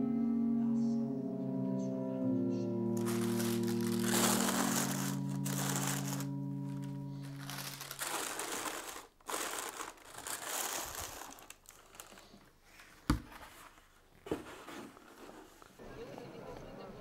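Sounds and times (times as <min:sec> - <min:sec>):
held musical chord: 0:00.0 - 0:11.2
tissue paper crinkling: 0:03.0 - 0:15.8.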